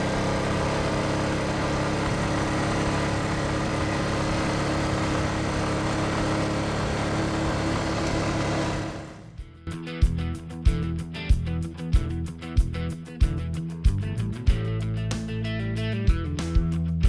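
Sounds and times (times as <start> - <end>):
quad bike engine running: 0.0 - 9.4.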